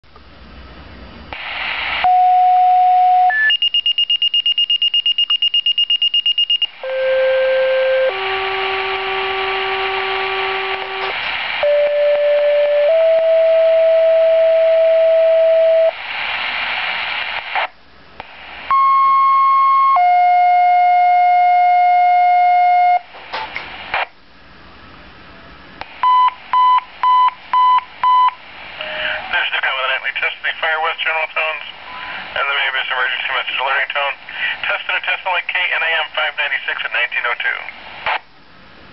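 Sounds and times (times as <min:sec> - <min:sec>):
radio hiss: 0:01.3 - 0:02.2, 0:08.0 - 0:13.4, 0:15.2 - 0:18.8, 0:23.4 - 0:24.1, 0:28.6 - 0:38.3
two-tone dispatch tones: 0:02.0 - 0:16.0, 0:18.7 - 0:23.1, 0:26.0 - 0:33.2.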